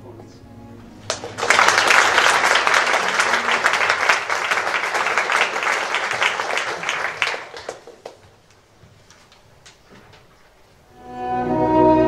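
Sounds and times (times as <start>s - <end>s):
audience applauding: 1.0s - 8.6s.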